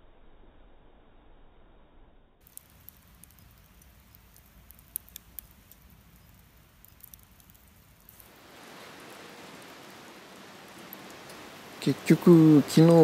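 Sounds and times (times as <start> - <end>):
faint clicks: 2.4 - 11.8, 12.7 - 13.0
wood fire hissing: 2.4 - 13.0.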